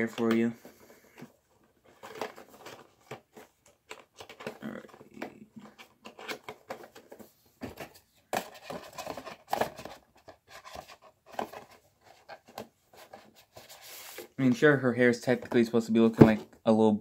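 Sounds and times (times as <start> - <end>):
handling clicks and rustles: 0.0 - 13.6.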